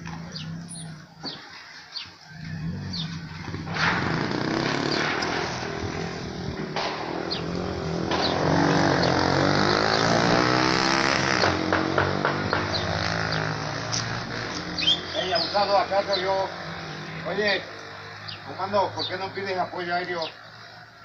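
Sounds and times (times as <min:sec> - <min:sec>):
vehicle engine revving: 0:00.0 - 0:01.3, 0:02.4 - 0:19.7
sharp cracks: 0:03.4 - 0:15.0.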